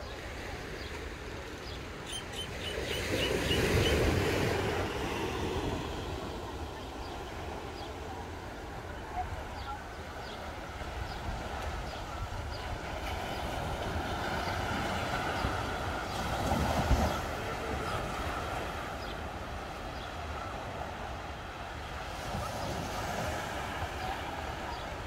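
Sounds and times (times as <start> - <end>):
beach ambience: 0.0 - 25.0.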